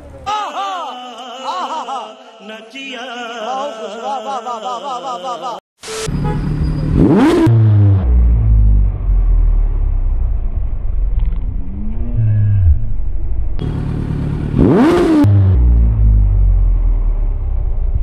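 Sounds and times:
motorcycle engine idling and revving: 0:00.0 - 0:00.3, 0:06.0 - 0:18.0.

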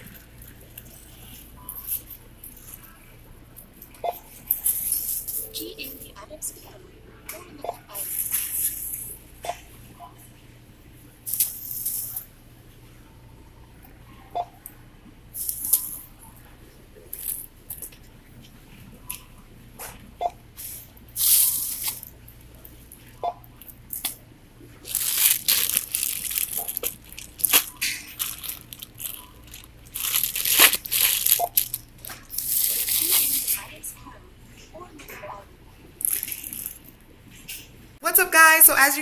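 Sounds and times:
plastic bags rustling: 0:24.8 - 0:33.7, 0:36.0 - 0:36.8.

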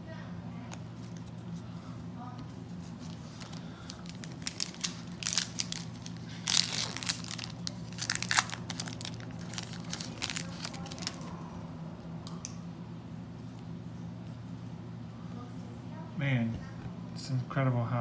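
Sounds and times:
foil wrapper tearing and crinkling: 0:03.1 - 0:11.3.

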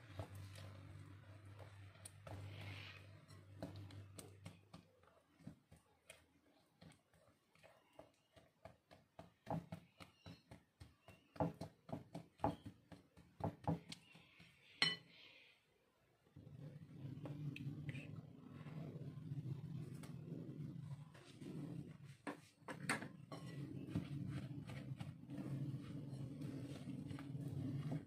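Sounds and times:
spatula mashing banana in bowl: 0:00.0 - 0:15.2, 0:16.4 - 0:28.0
spatula clinking against glass: 0:14.8 - 0:15.1.

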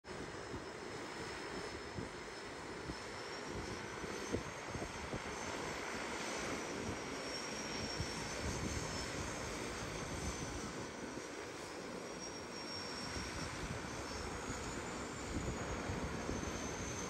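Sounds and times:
propeller drone: 0:00.0 - 0:17.0
thin high whine: 0:00.2 - 0:17.0.

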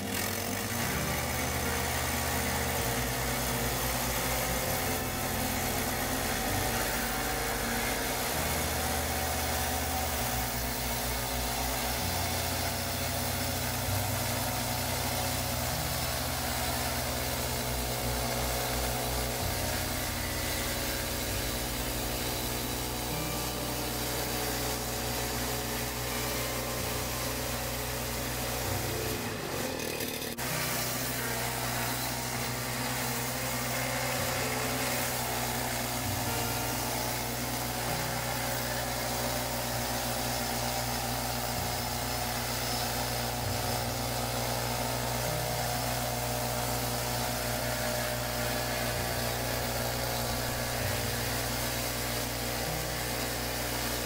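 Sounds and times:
band blade cutting log: 0:00.0 - 0:54.0
sawmill engine running: 0:00.0 - 0:54.0.

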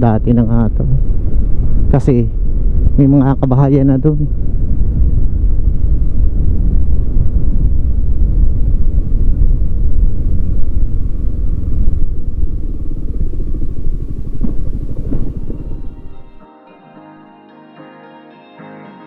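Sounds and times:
motorcycle engine rumble: 0:04.4 - 0:16.4.

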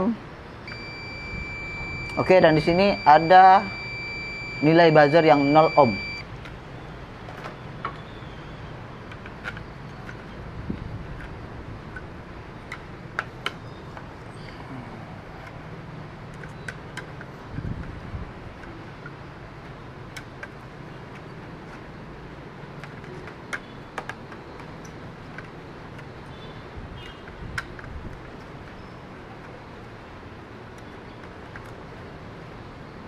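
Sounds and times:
low background hum: 0:00.0 - 0:16.6.

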